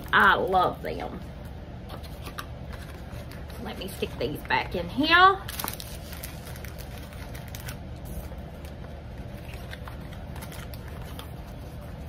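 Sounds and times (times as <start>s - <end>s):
plastic bag rustling: 5.4s - 12.0s.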